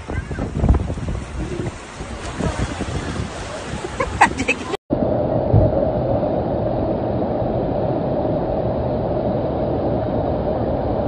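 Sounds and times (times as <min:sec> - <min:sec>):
floodwater rushing: 0:00.0 - 0:04.8.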